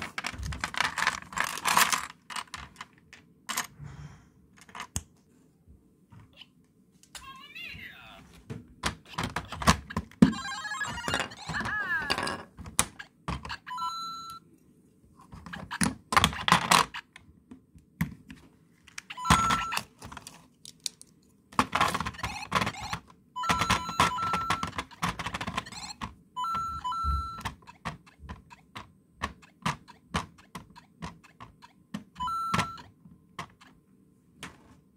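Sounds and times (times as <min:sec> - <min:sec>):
toy electronic beeps and jingles: 0:10.3 - 0:12.0, 0:19.1 - 0:19.9, 0:22.2 - 0:25.0, 0:30.7 - 0:32.9.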